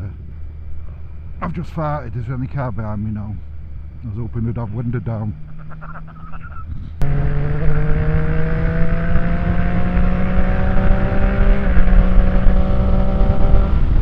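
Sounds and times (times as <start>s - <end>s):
wind rush: 6.6s - 14.0s
motorcycle engine accelerating: 6.9s - 14.0s.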